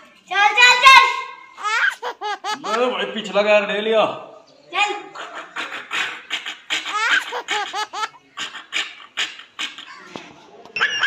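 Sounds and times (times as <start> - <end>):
child laughing: 1.6 - 3.0, 4.8 - 10.2.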